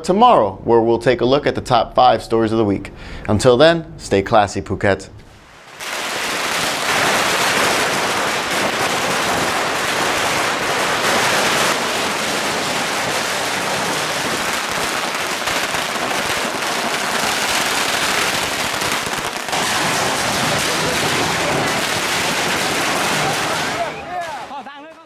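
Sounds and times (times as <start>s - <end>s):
firecrackers crackling: 5.3s - 25.0s.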